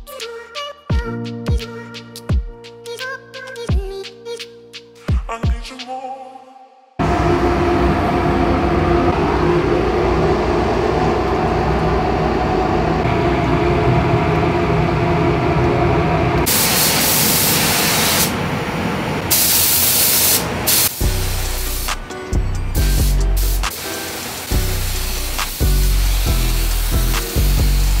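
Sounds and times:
ventilation roar: 7.0s - 28.0s
paint spray gun hissing: 16.5s - 18.4s, 19.3s - 22.1s, 22.8s - 28.0s.

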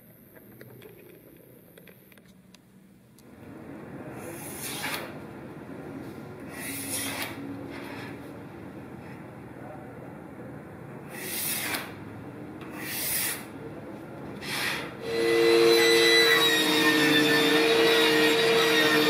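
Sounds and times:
pencil scraping along steel square: 11.2s - 11.9s
table saw whining: 14.4s - 19.0s.

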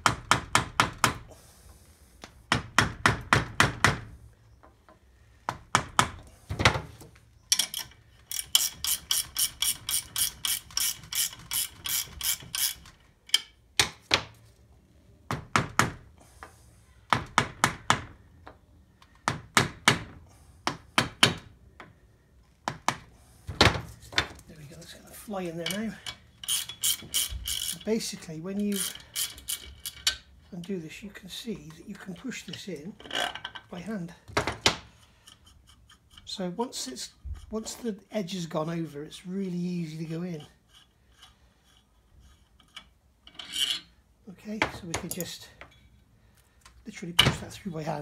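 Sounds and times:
ratchet clicking: 7.5s - 13.5s, 26.4s - 27.9s, 28.7s - 30.2s.

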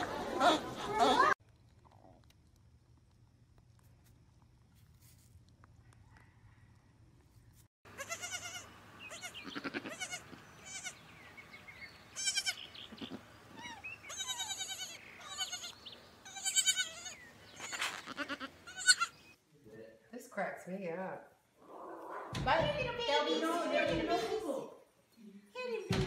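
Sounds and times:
goat kid bleating: 7.9s - 11.0s, 12.2s - 19.2s.

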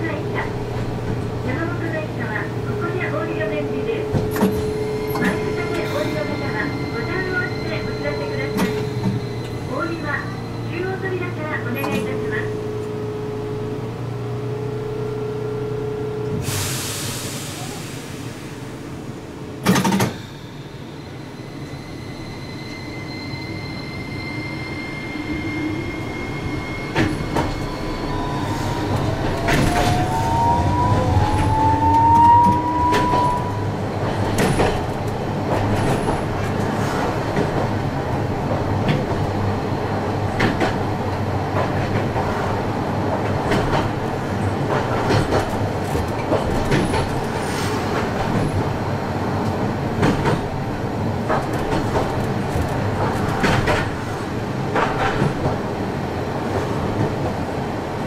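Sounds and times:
tram rumble: 0.0s - 58.0s
tram motor whine: 17.5s - 54.6s.

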